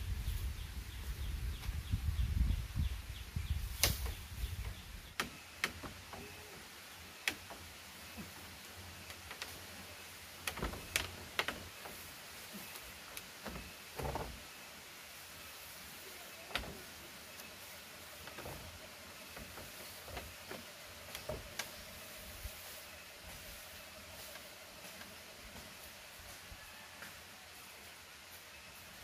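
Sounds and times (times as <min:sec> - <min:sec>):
dry grass rustling: 0:05.9 - 0:29.0.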